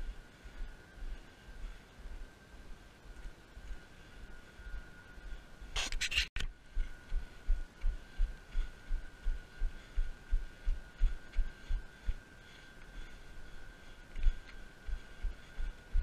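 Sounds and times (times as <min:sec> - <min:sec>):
faint steady high tone: 0:00.0 - 0:05.7.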